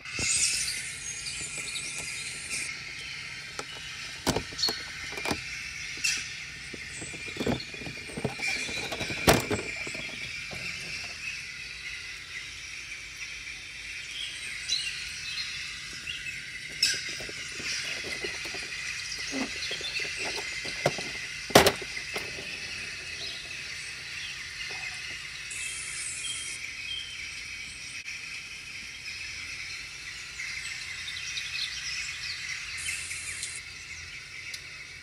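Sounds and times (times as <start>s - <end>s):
faint chirps: 0.0s - 35.0s
steady high hiss: 0.0s - 35.0s.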